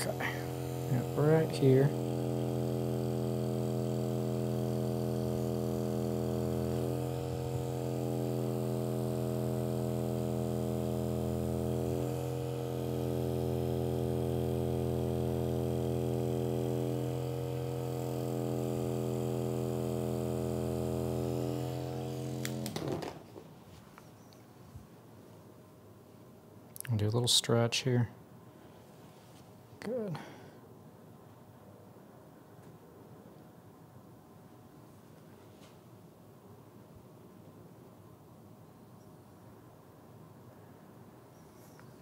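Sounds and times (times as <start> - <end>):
massage tool motor hum: 0.0 - 23.4.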